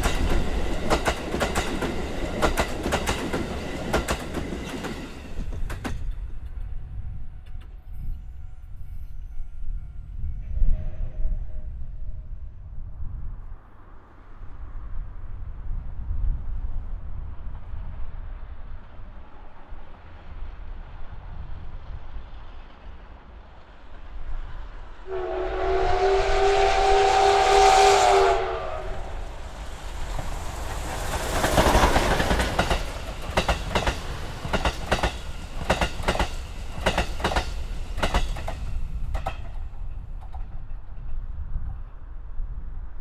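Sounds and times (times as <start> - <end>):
steam locomotive whistle: 7.8 - 12.2, 25.0 - 29.5.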